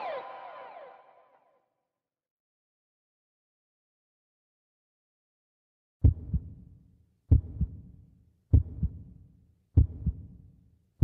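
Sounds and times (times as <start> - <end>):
heartbeat double thump: 6.0 - 6.6, 7.3 - 7.8, 8.5 - 9.0, 9.8 - 10.2.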